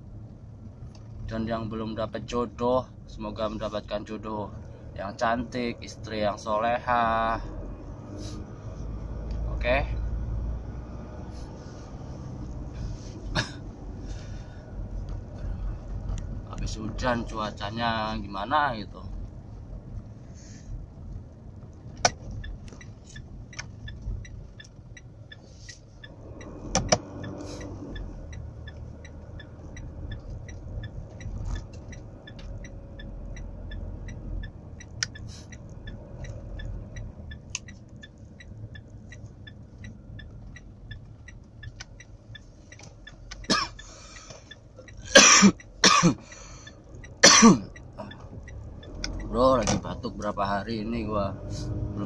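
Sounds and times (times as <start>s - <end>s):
car road and engine noise: 0.0s - 52.0s
man coughing: 13.3s - 13.7s, 43.5s - 43.8s, 45.1s - 46.2s, 47.2s - 47.7s.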